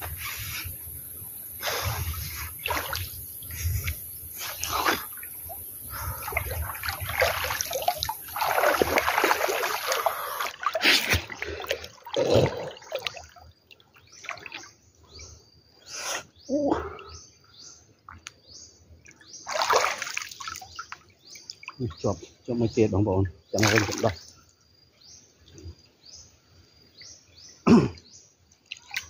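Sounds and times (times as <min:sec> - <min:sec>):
water sloshing and splashing: 0:01.6 - 0:15.2, 0:19.0 - 0:22.0, 0:23.6 - 0:24.3, 0:28.6 - 0:29.0.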